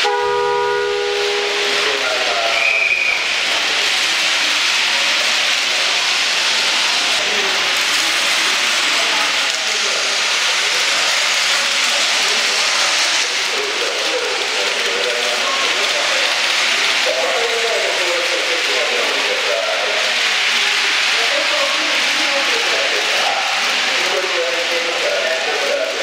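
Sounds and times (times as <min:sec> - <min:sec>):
horn-like tone: 0:00.0 - 0:03.0
model trains rolling on track: 0:00.0 - 0:26.0.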